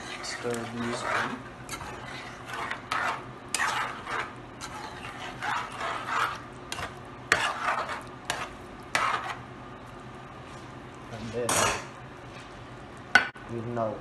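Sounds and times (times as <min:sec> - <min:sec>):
spoon stirring stew in metal pot: 0:00.0 - 0:09.4.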